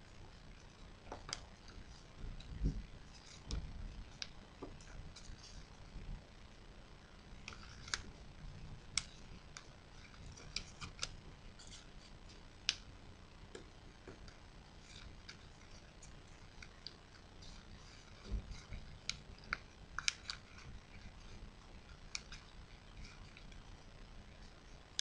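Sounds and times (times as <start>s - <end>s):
paper crinkling: 0.5s - 5.8s, 7.4s - 12.8s, 14.0s - 24.8s.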